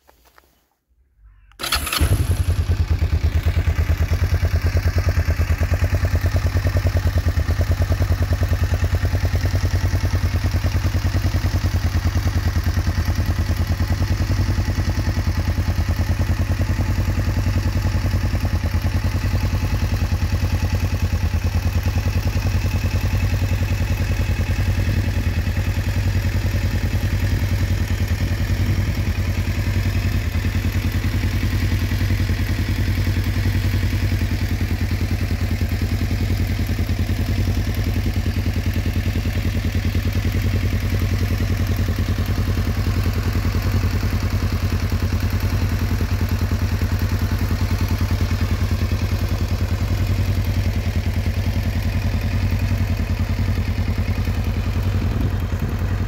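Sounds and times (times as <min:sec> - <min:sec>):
motorcycle engine idling: 0:01.3 - 0:56.0
electric starter cranking: 0:01.6 - 0:02.5.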